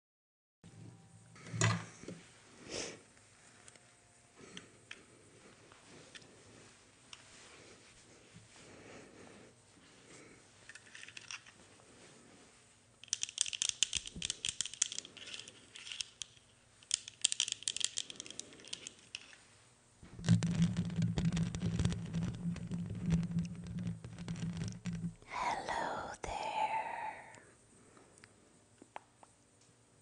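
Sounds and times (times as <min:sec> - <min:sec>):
plastic glasses clicking and rustling: 0:10.6 - 0:11.6, 0:13.0 - 0:19.4, 0:20.1 - 0:25.2
fingers rubbing on microphone: 0:20.1 - 0:25.2.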